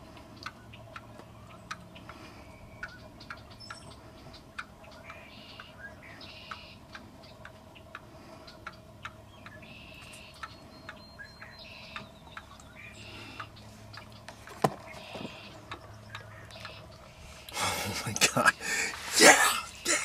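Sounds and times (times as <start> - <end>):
light ticks: 0.0 - 2.2, 2.8 - 5.7, 6.4 - 12.8, 15.6 - 17.6
wild turkey calling: 0.0 - 20.0.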